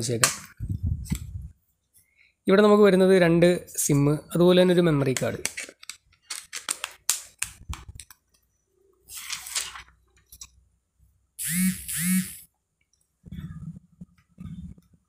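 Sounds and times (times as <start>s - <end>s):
short phone buzzes: 11.4s - 12.5s.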